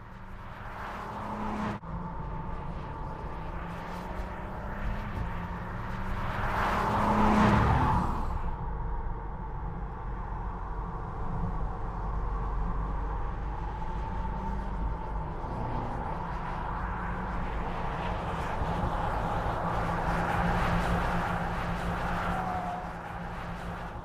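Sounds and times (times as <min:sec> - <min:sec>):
car driving past at speed: 0:04.2 - 0:08.6.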